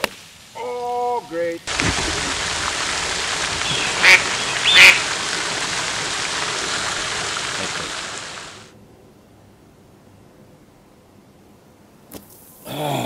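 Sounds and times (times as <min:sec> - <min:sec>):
water rushing from fountain: 0:00.0 - 0:08.7
duck quacking: 0:03.6 - 0:05.1.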